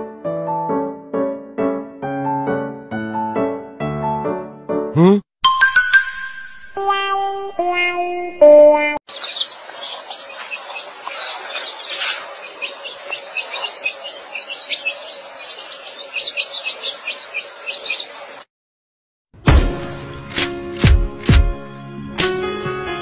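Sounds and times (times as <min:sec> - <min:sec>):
small birds chirping: 0:09.1 - 0:18.4.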